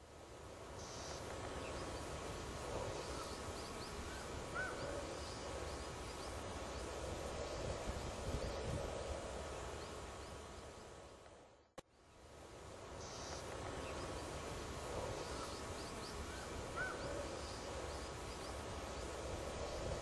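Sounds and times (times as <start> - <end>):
faint small birds chirping: 13.0 - 19.9.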